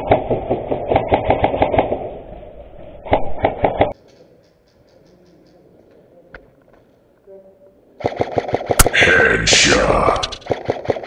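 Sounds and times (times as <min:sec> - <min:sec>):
airsoft rifle firing bursts: 0:08.0 - 0:08.9.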